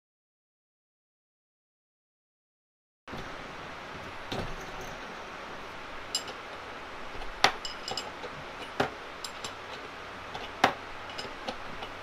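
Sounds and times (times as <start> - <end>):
metal clinks and taps: 6.1 - 6.4, 7.4 - 9.6, 10.4 - 12.0.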